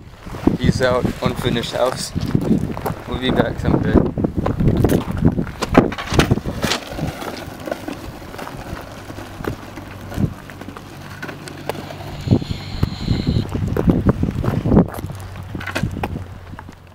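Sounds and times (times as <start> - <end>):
skateboard wheels rolling on asphalt: 0.0 - 16.9
faint steady hum: 10.8 - 13.6.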